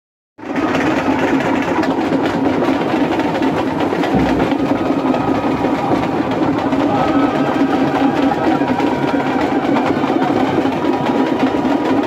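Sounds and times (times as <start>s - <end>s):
fast clatter: 0.4s - 12.0s
crowd din: 3.8s - 12.0s.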